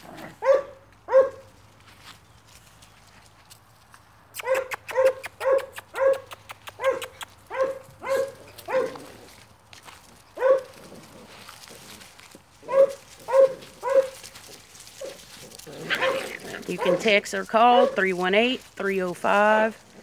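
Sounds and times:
puppy barking in high yaps: 0.4s - 1.5s, 4.4s - 9.0s, 10.4s - 10.7s, 12.6s - 14.2s, 15.8s - 17.0s.

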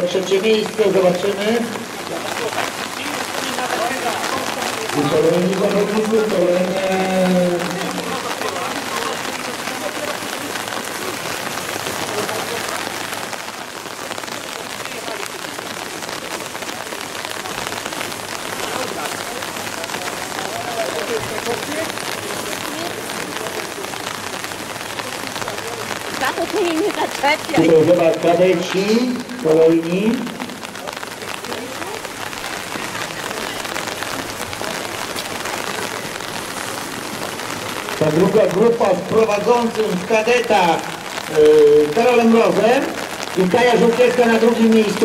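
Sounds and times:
rain falling on asphalt: 0.0s - 45.0s.

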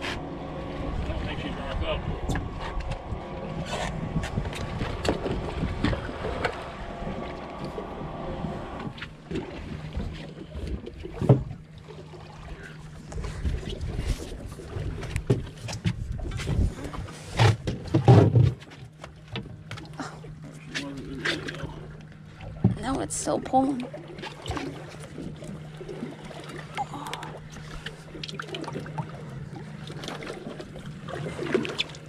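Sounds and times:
wind on microphone: 0.0s - 9.0s, 13.1s - 17.2s
boat engine hum: 0.0s - 32.0s.

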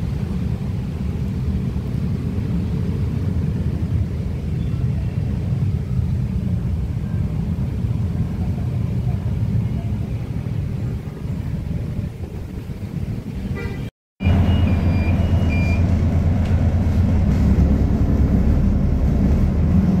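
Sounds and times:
bus engine idling: 0.0s - 20.0s
traffic rumble: 0.0s - 20.0s
short high beeps: 14.2s - 15.9s.

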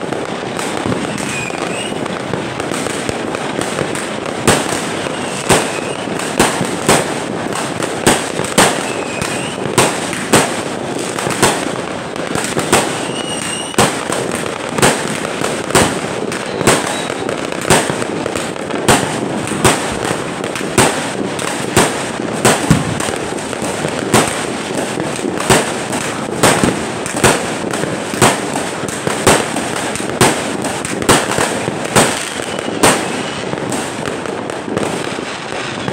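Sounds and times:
fireworks bangs: 0.0s - 35.9s
faint firework whistles: 0.1s - 20.2s, 28.1s - 35.9s.

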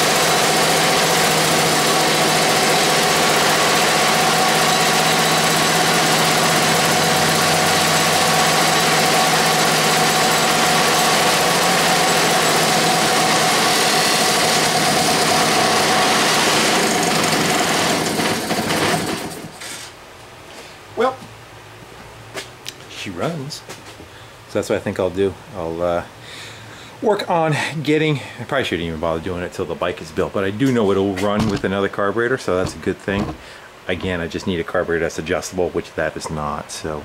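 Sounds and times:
two-stroke engine running: 0.0s - 19.5s.

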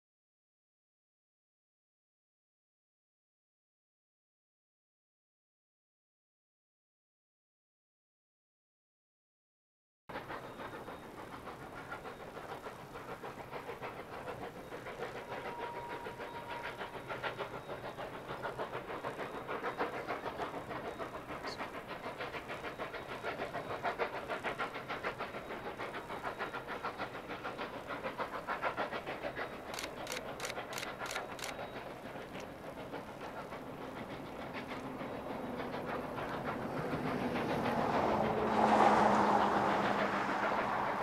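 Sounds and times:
steam locomotive chuffing: 10.1s - 41.0s.

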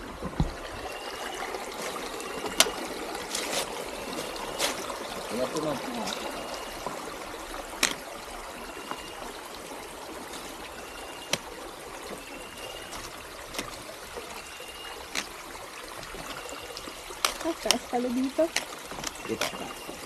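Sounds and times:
trekking pole clicking on rock: 7.8s - 8.0s, 15.1s - 15.4s, 17.2s - 17.8s.

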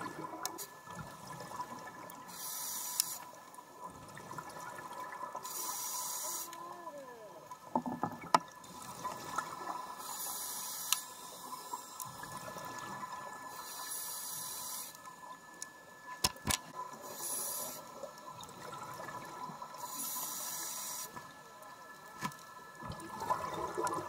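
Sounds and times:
scuba breathing hiss underwater: 2.2s - 3.4s, 5.4s - 6.7s, 9.9s - 12.0s, 13.4s - 15.1s, 16.9s - 18.1s, 19.7s - 21.2s.

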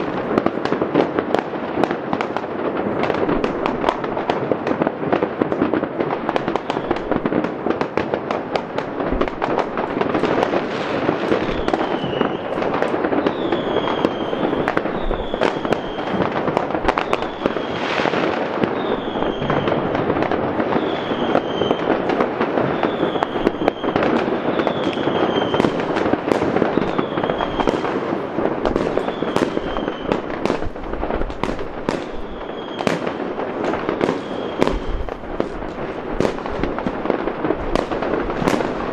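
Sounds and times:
firecracker bangs: 0.0s - 38.9s
fireworks crackling: 0.0s - 38.9s
falling firework whistle: 6.3s - 7.3s, 9.2s - 38.9s.

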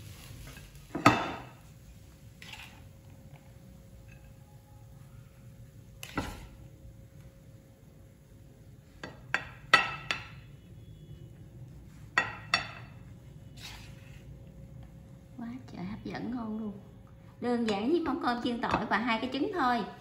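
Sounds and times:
spatula knocking on plate and pan: 9.0s - 10.4s, 12.2s - 13.0s.

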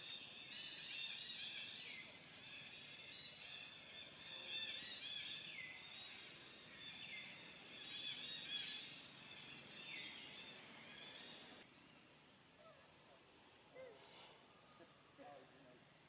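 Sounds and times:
small birds chirping: 0.0s - 15.8s.

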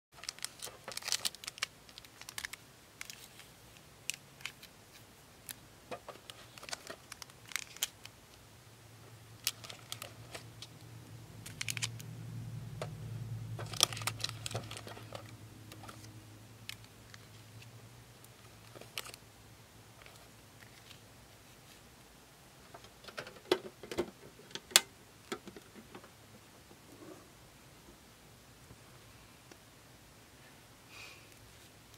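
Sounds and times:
foil packs crinkling: 0.2s - 4.7s, 6.2s - 8.2s, 9.4s - 10.4s, 11.4s - 12.0s, 13.6s - 16.1s
low hum: 10.1s - 18.2s.

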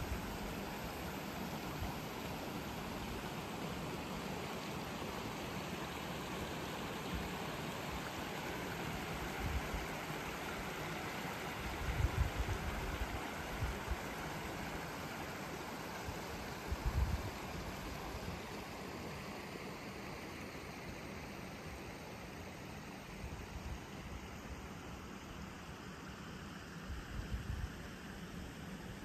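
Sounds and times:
brook running over stones: 0.1s - 18.8s.

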